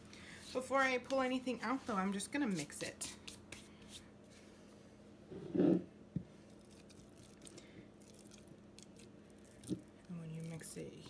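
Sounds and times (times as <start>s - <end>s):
spatula squishing sticky starter: 6.5s - 11.0s.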